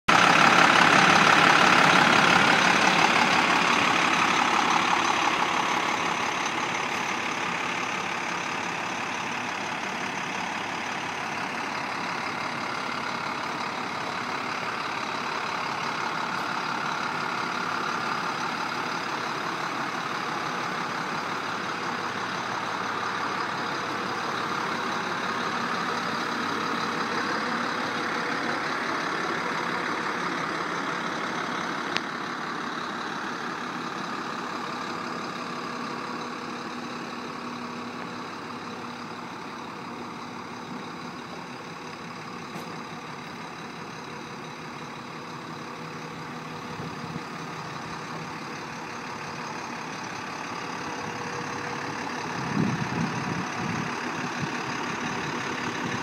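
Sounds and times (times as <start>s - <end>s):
diesel truck idling: 0.1s - 56.0s.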